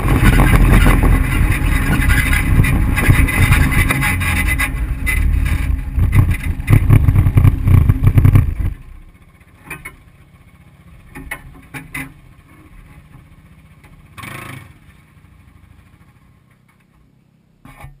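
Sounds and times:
wind buffeting microphone: 0:00.0 - 0:08.9
utility vehicle engine running: 0:00.0 - 0:17.0
distant vehicle engine: 0:00.0 - 0:17.6.

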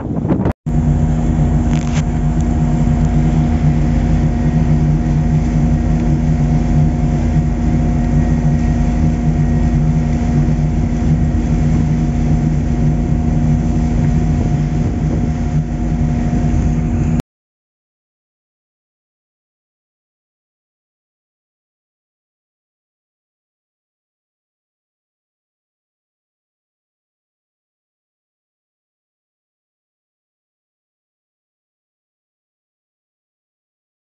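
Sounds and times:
boat engine droning: 0:00.0 - 0:17.2.

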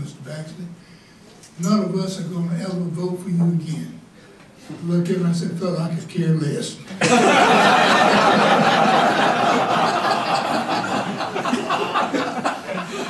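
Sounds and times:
audience laughing: 0:07.0 - 0:13.0.

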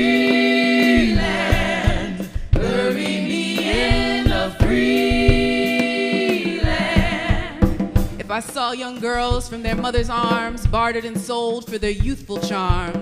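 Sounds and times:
women singing in harmony: 0:00.0 - 0:08.2.

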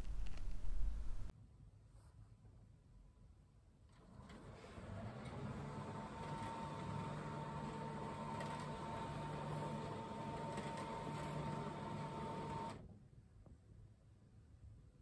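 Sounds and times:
roller blind motor humming: 0:03.9 - 0:12.8.

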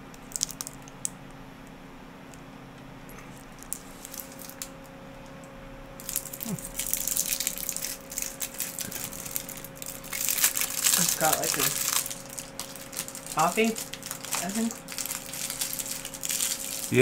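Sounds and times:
foil wrapper crinkling: 0:00.3 - 0:01.0, 0:03.3 - 0:04.8, 0:06.0 - 0:17.0.

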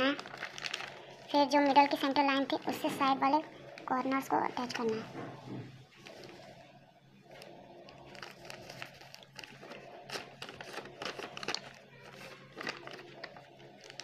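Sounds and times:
paper rustling and crinkling: 0:00.0 - 0:02.3, 0:05.9 - 0:14.0.

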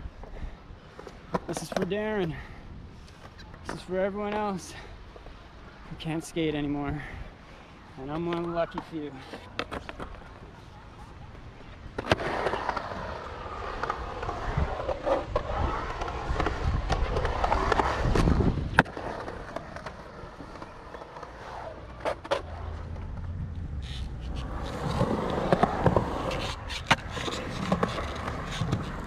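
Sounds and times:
skateboard wheels rolling: 0:00.0 - 0:29.0
skateboard clacks: 0:08.1 - 0:29.0.

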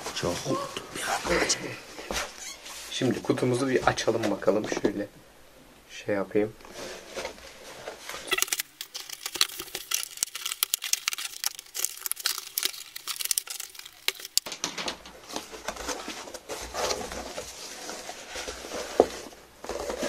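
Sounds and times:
cardboard rustling: 0:07.0 - 0:20.0
cardboard flaps tearing: 0:08.2 - 0:14.5
plastic straps pulled off: 0:08.2 - 0:14.5.

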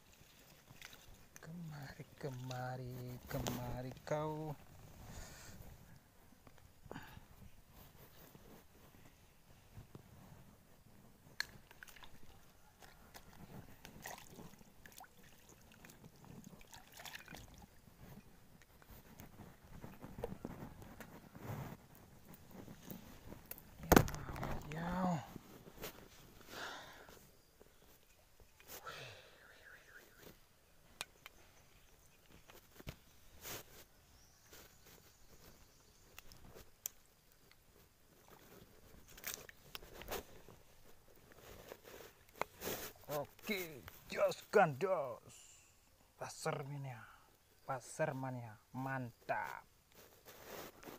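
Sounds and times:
small clicks and handling noises: 0:36.1 - 0:40.5.

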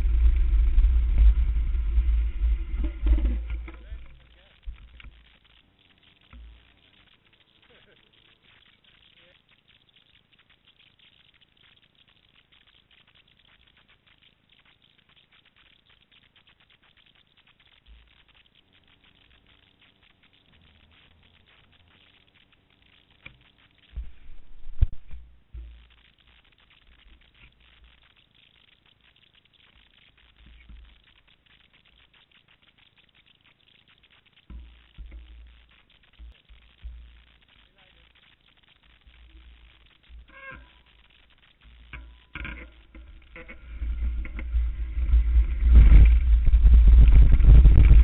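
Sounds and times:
low thumps: 0:00.0 - 0:05.3, 0:23.9 - 0:26.0, 0:34.4 - 0:37.6
faint crackling ticks: 0:00.0 - 0:48.0.

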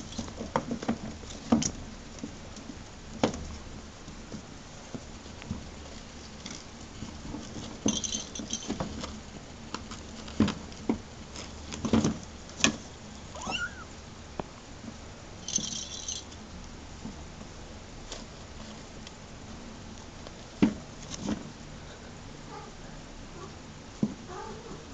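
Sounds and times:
kitten squeak: 0:13.3 - 0:13.9
cat toy bell jingling: 0:15.4 - 0:16.3.

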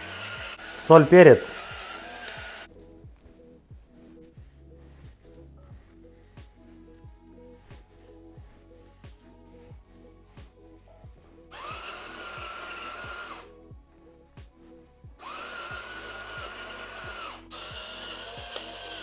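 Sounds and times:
electric grinder whirring: 0:00.0 - 0:02.7, 0:11.5 - 0:13.5, 0:15.2 - 0:19.0
background music with steady beat: 0:00.0 - 0:19.0.

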